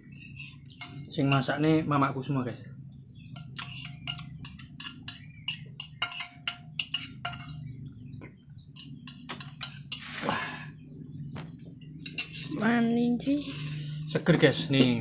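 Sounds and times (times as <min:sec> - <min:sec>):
spoon clinking against ceramic bowl: 0:00.0 - 0:01.7, 0:03.3 - 0:07.9, 0:08.7 - 0:10.2, 0:11.9 - 0:12.6, 0:13.2 - 0:15.0.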